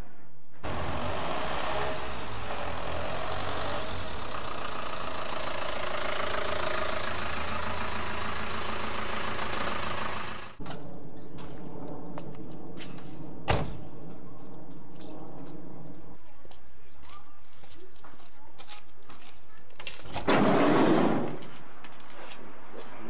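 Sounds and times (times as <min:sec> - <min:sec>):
van engine running: 0:00.6 - 0:10.6.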